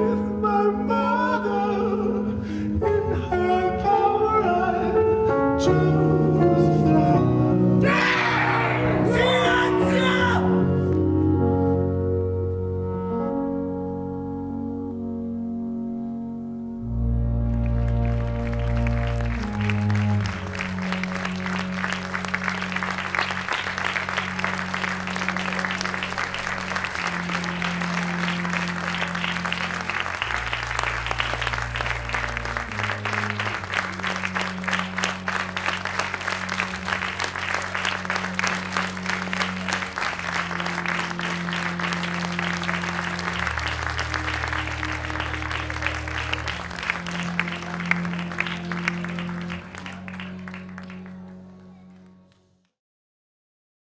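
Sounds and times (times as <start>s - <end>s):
slow low chords: 0.0s - 52.3s
audience applauding: 7.8s - 10.4s, 17.0s - 52.7s.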